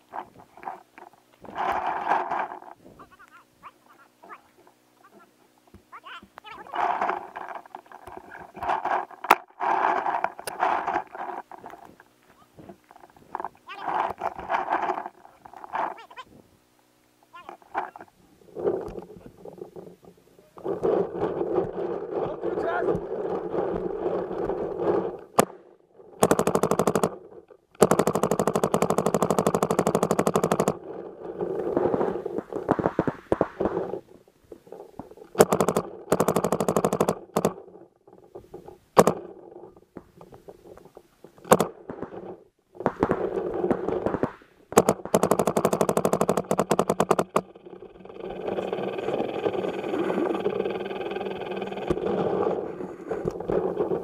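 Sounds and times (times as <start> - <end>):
paintball marker firing shots: 25.3 - 25.6, 26.2 - 27.2, 27.8 - 30.8, 35.3 - 37.6, 39.0 - 39.3, 41.4 - 47.5.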